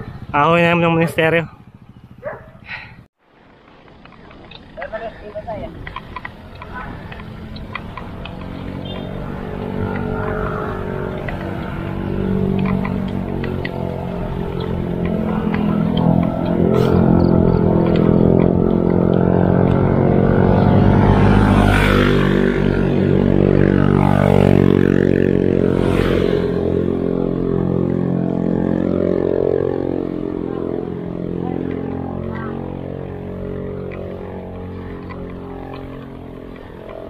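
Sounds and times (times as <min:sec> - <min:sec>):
vehicle engine running: 0:00.0 - 0:37.0.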